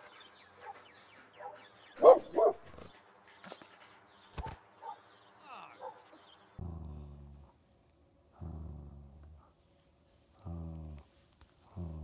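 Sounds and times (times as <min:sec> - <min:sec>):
dog barking: 0:01.4 - 0:02.6, 0:04.4 - 0:05.1, 0:05.8 - 0:06.2.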